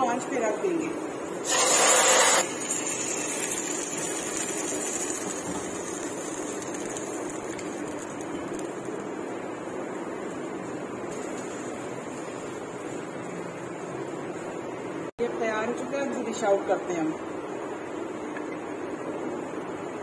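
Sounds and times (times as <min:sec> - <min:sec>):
hot oil sizzling: 0:01.4 - 0:14.6.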